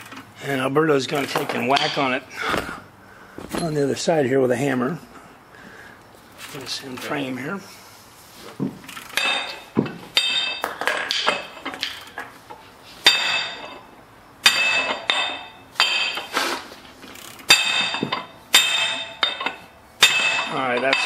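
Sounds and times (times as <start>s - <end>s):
hammer striking metal tool: 14.4s - 16.3s, 17.5s - 21.0s.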